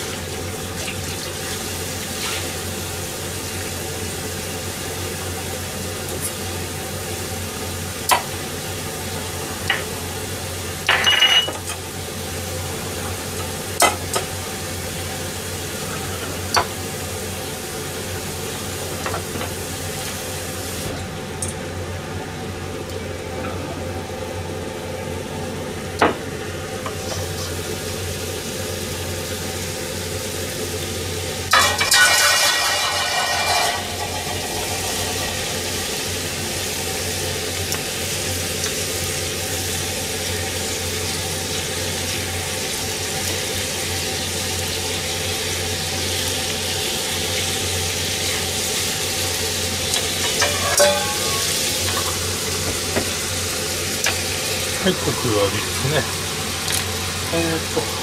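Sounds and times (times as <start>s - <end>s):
patties sizzling in frying pan: 0.0s - 23.1s, 24.1s - 58.0s
metal clatter: 31.5s - 35.4s, 50.3s - 52.0s.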